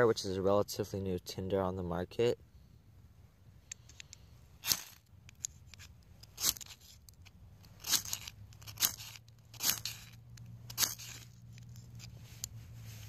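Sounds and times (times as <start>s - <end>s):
striker scraping ferrocerium rod: 3.8s - 13.0s.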